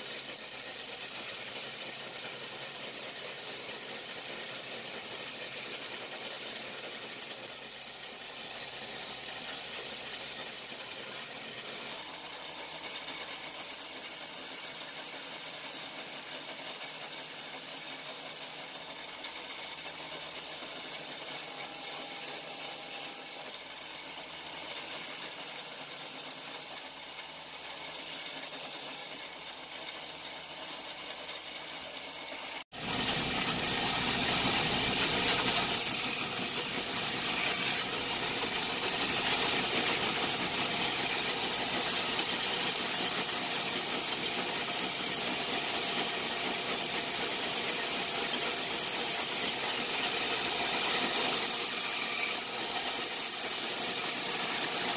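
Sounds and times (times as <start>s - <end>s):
workshop machine noise: 0.0s - 54.9s.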